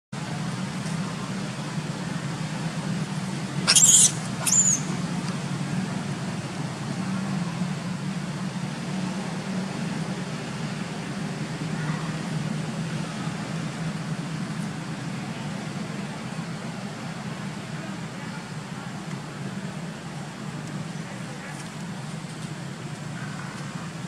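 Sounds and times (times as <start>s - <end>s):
monkey squealing: 3.7s - 5.0s.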